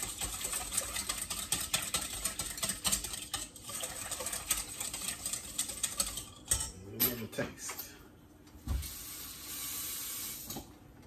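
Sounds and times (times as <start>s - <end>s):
wire whisk scraping metal bowl: 0.0s - 7.7s.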